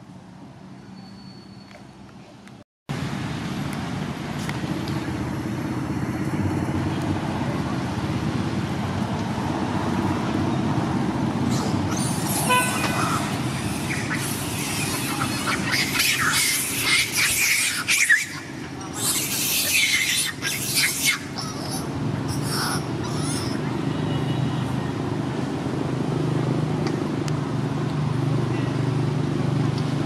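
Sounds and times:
motor vehicle running: 1.7 - 30.0
horn toot: 12.3 - 13.3.

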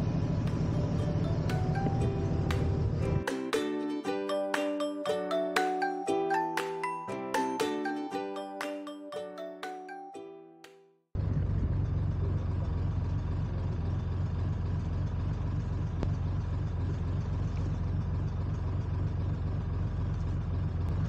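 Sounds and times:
boat engine droning: 0.0 - 3.2
chiming music jingle: 0.5 - 10.9.

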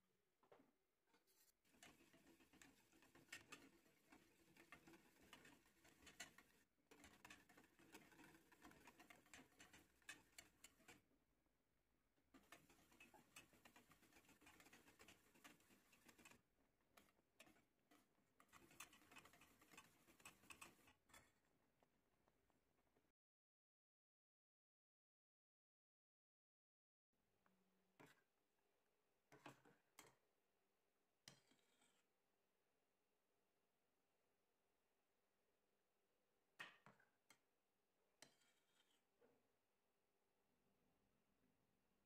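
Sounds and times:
whisk scraping: 1.3 - 11.1, 12.4 - 21.4, 31.3 - 32.0, 38.2 - 39.0
whisk tapping metal pot: 1.7 - 11.1, 12.4 - 21.5.

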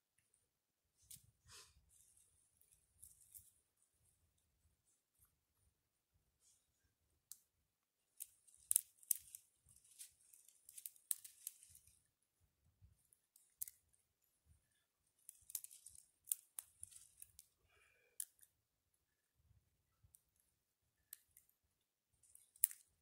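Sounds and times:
rustling: 1.0 - 4.0, 8.1 - 12.1, 15.2 - 17.5
dry twigs snapping: 8.2 - 11.9, 15.3 - 17.4, 22.3 - 22.8.

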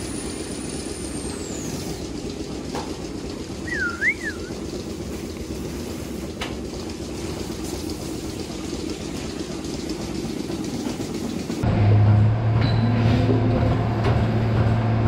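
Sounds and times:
low mechanical rumble of machinery: 0.0 - 15.0.

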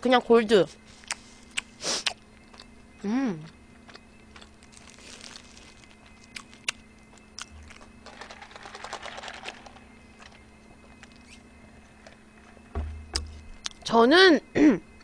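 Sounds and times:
low steady hum: 0.0 - 15.0
chewing and mouth clicks: 1.0 - 2.7, 3.4 - 7.8
paper wrapper rustling: 4.6 - 6.6.

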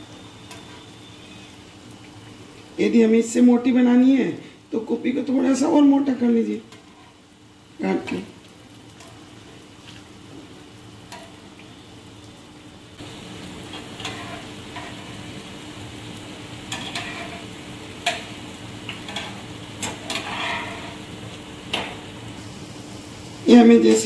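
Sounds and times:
batter sizzling in hot oil: 0.0 - 24.0
metal tongs scraping a pan: 6.7 - 7.2, 13.7 - 15.3, 16.7 - 18.3, 19.0 - 21.0, 21.7 - 22.0.

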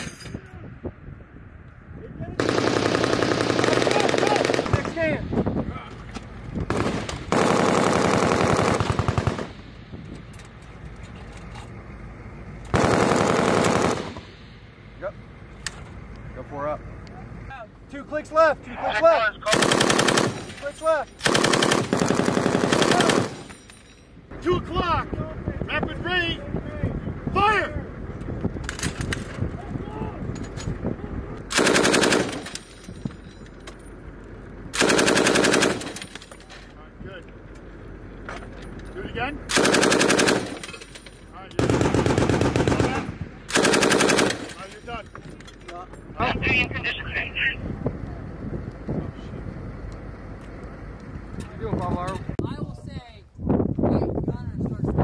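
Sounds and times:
machine gun bursts: 12.8 - 14.2, 19.5 - 20.6, 21.2 - 23.5, 31.5 - 32.7, 34.8 - 36.3, 39.5 - 41.0, 41.6 - 44.7.

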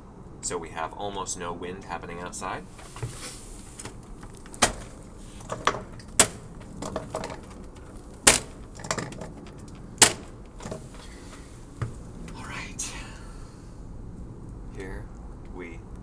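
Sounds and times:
sharp clicks and knocks: 3.8 - 12.4.

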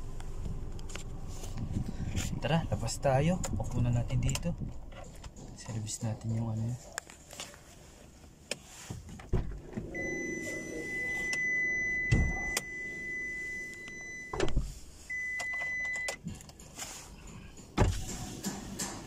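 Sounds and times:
clunks: 8.9 - 19.0
power window motor whine: 9.4 - 14.8.

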